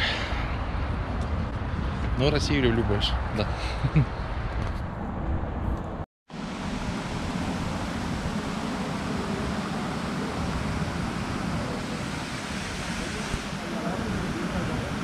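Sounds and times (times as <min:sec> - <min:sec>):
fountain water splashing: 0:06.4 - 0:15.0.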